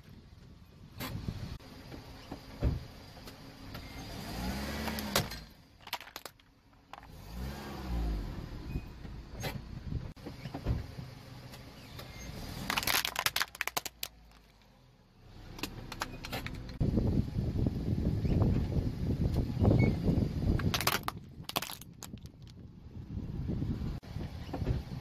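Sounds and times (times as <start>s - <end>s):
car engine: 0.1s - 25.0s
plastic toy cracking under tyre: 4.9s - 7.1s, 12.6s - 14.7s, 20.6s - 22.6s.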